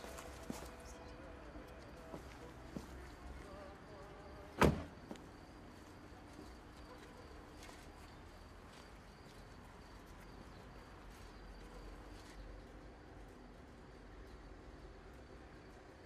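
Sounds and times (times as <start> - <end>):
insect trill: 0.0 - 6.0.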